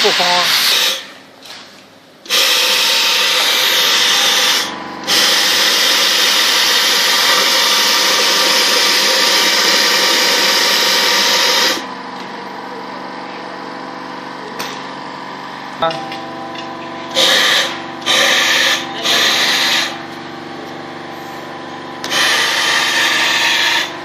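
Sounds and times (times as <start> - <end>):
tape bonding machine running: 0.0 - 15.0, 15.7 - 24.0.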